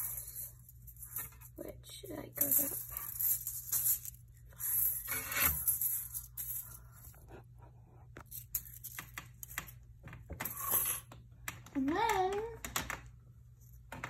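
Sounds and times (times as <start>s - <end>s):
crinkly rustling and scraping: 0.0s - 9.8s.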